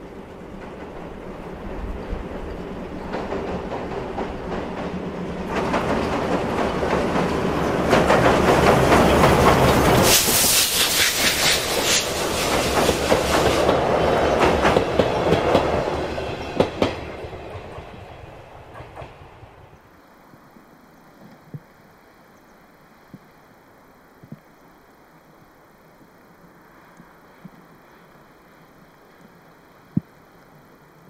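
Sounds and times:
clickety-clack over rail joints: 0.0s - 19.8s
train wheels rumbling on bridge: 0.0s - 19.9s.

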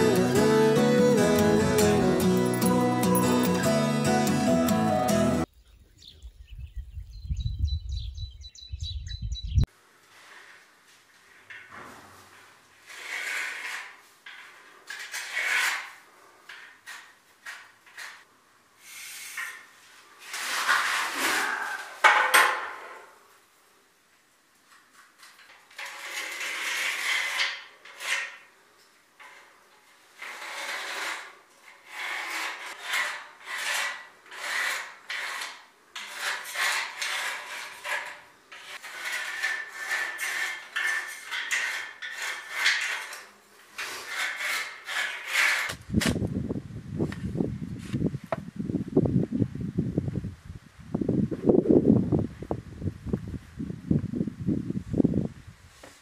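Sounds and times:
hands scraping cement plaster: 11.4s - 22.0s, 24.7s - 28.5s, 30.2s - 46.1s
shovel scraping mix in wheelbarrow: 20.2s - 22.0s.

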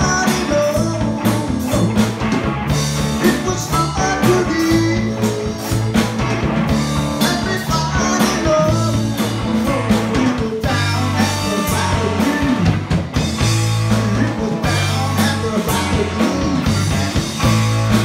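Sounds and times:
drum kit steady beat: 0.0s - 18.0s
electric guitar lines: 0.0s - 18.0s.

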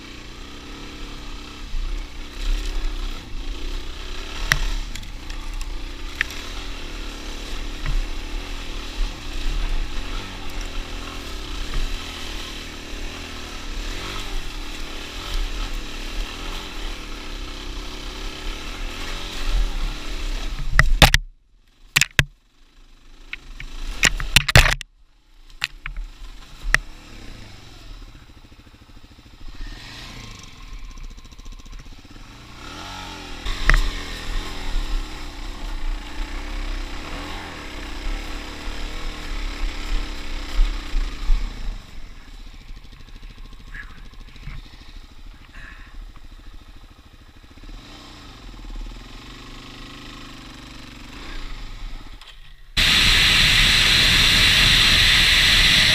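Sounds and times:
motorcycle engine revving: 0.0s - 21.3s, 21.9s - 24.9s, 25.6s - 55.9s
wind hiss: 52.8s - 55.9s.

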